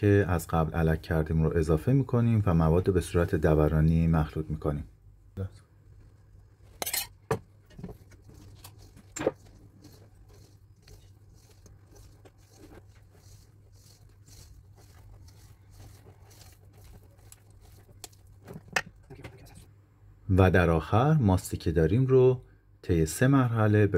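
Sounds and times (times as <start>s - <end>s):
whisk stirring batter: 7.9s - 19.6s.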